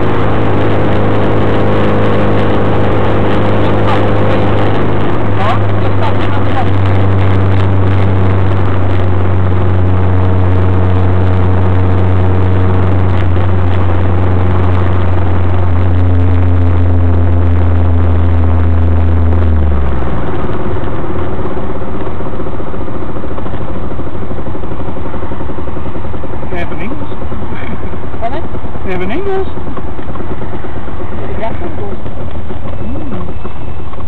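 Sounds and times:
car engine droning: 0.0 - 34.0
wind and road noise: 0.0 - 34.0.

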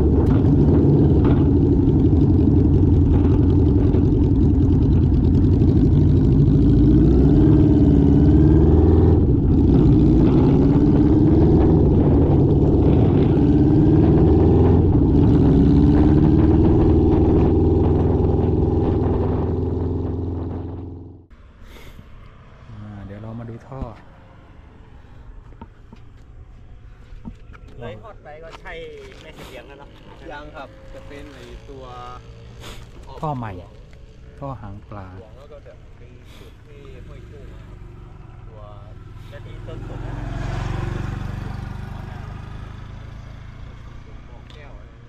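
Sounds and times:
motorcycle engine revving: 0.0 - 21.3, 28.9 - 45.0.

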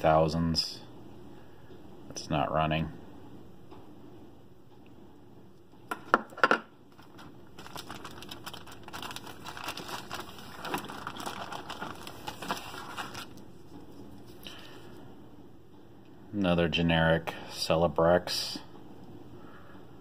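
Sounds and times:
plastic bag crinkling: 6.9 - 13.5.

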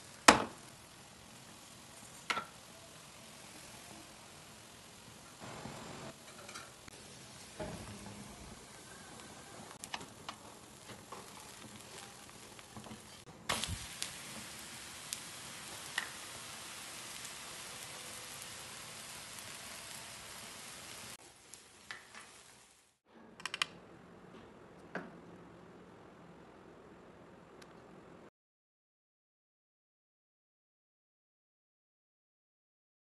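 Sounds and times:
batter sizzling on hot griddle: 0.0 - 23.0.

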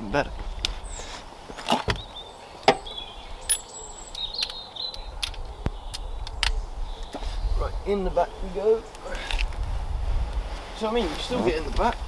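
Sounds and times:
birds chirping faintly: 0.0 - 9.3.

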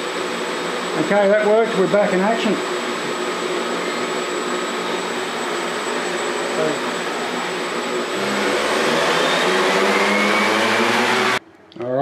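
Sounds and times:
quadcopter motors whirring: 4.0 - 11.4.

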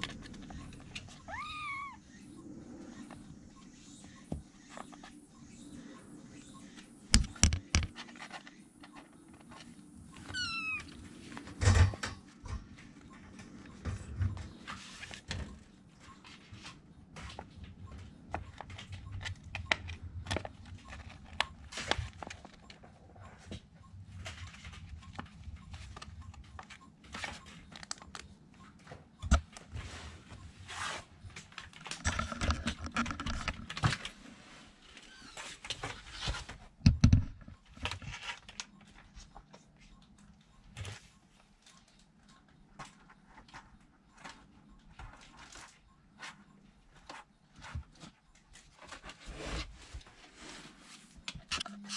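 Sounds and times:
kitten meowing: 1.2 - 2.0, 10.3 - 10.9.

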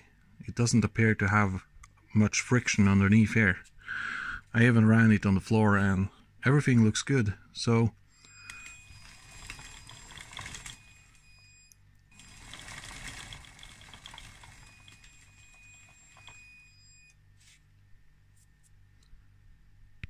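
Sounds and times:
high motor whine: 8.2 - 16.6.

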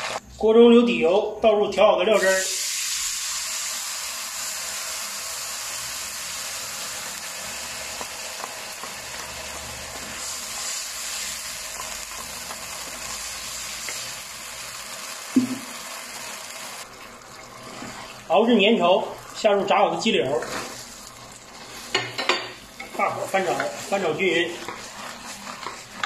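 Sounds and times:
sauce sizzling in a wok: 2.1 - 26.0
wooden spatula stirring: 17.0 - 18.4, 20.0 - 26.0.

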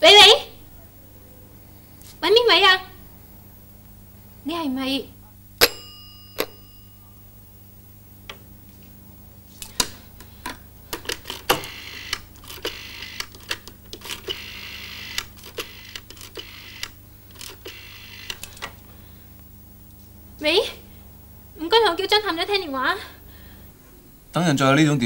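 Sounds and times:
rotary dial whirring back: 9.6 - 18.8.

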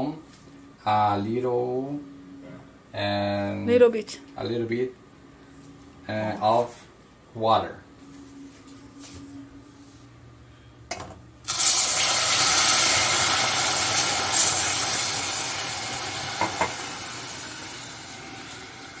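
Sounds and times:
water sizzling in hot pan: 11.5 - 19.0.

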